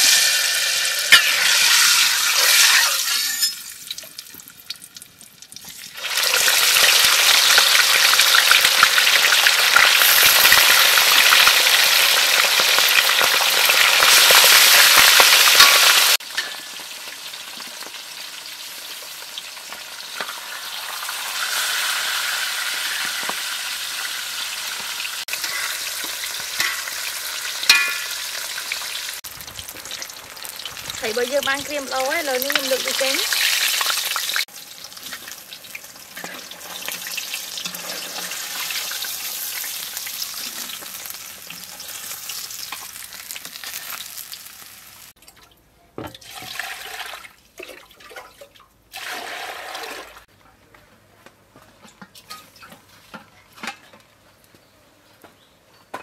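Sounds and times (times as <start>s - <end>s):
fish frying in hot oil: 0.0s - 45.2s
metal spatula clinking on wok: 27.7s - 28.2s.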